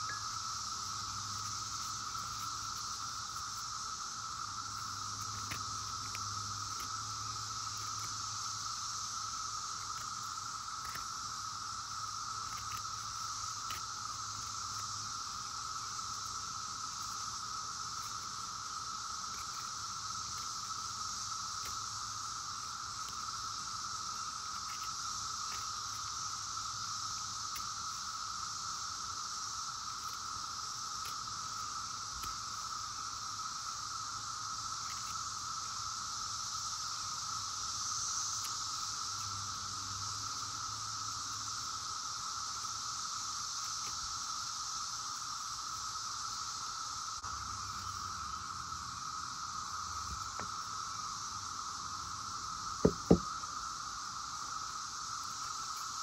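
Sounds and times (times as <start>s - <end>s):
cicadas buzzing: 0.0s - 56.0s.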